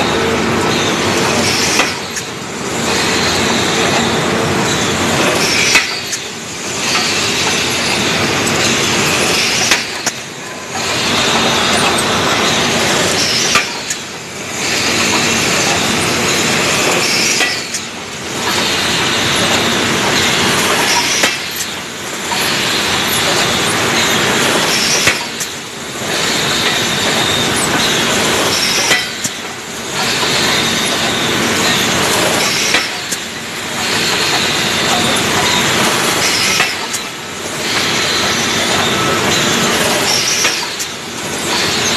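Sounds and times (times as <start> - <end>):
faint machine squeal: 0.0 - 17.9, 18.5 - 21.7, 26.1 - 41.9
casting machinery metallic clatter: 0.8 - 41.9.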